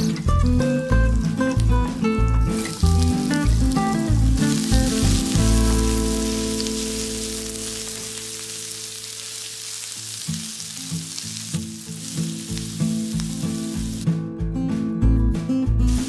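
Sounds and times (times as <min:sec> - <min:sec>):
music with pulsing bass: 0:00.0 - 0:07.7
onions sizzling in a pan: 0:00.0 - 0:14.1.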